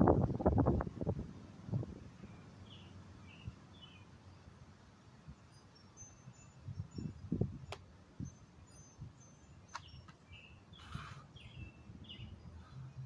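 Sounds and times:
birds chirping: 2.1 - 4.6, 5.3 - 13.0.

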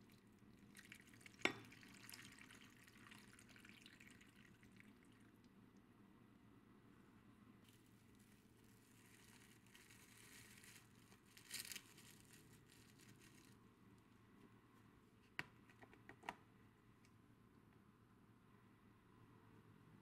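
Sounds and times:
soft rustling or scraping: 7.6 - 13.6.

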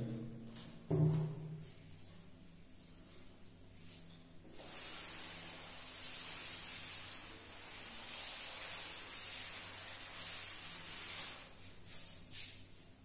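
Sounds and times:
cloth rubbing chalkboard: 4.0 - 12.7.

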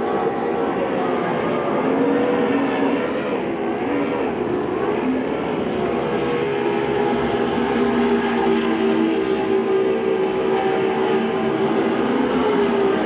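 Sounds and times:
powerboat engines at high revs: 0.0 - 13.0.

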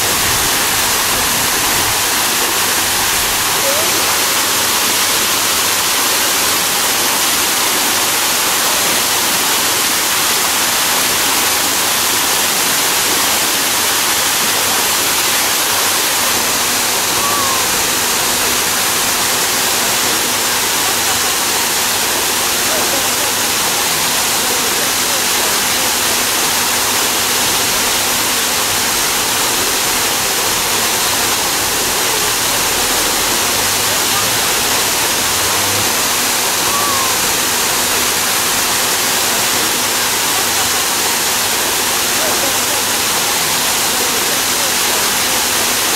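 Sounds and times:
waterfall rushing into pool: 0.0 - 45.9.

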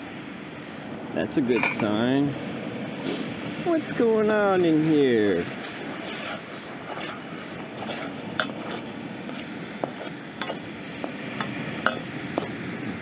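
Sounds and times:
stew bubbling: 3.0 - 12.6
metal spoon clinking on pot: 11.4 - 12.1.

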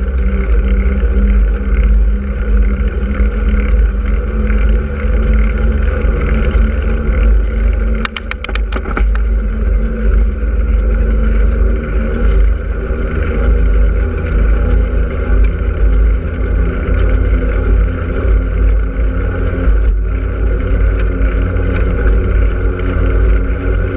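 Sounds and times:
road noise rolling: 0.0 - 23.9
wind buffeting microphone: 0.0 - 23.9
sharp clicks: 8.0 - 9.3.

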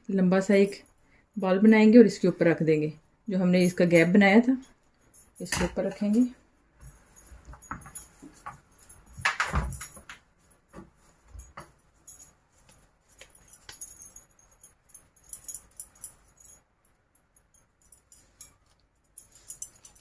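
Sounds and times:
bangles jingling and clinking: 3.6 - 20.0.

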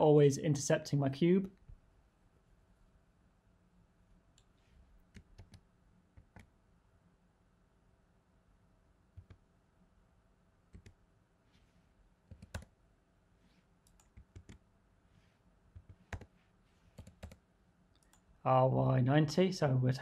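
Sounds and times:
computer keys clicking: 5.1 - 5.6, 10.7 - 11.0, 12.3 - 12.7, 13.8 - 14.6, 15.8 - 16.3, 17.0 - 17.4.

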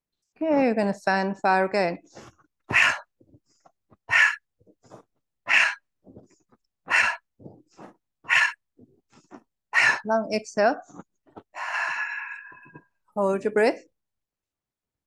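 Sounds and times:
faint inhales: 11.6 - 12.8.

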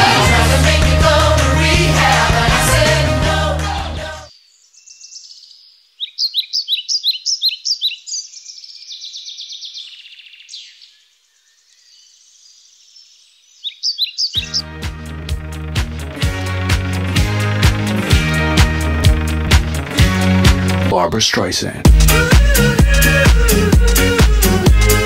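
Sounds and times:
songbirds chirping: 4.3 - 14.8.

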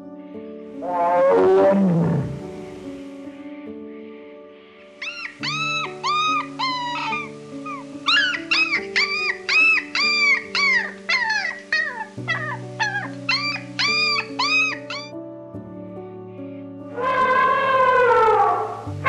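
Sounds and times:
soft background music: 0.0 - 19.0
small dog yapping: 5.0 - 15.1.

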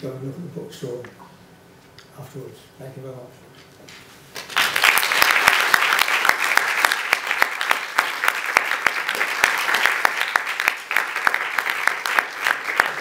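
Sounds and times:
audience applauding: 4.4 - 13.0.

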